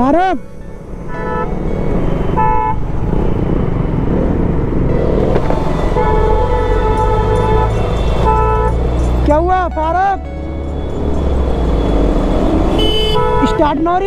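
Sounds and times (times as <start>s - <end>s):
road traffic rumbling: 0.0s - 14.0s
vehicle horns honking: 1.0s - 3.0s, 5.0s - 14.0s.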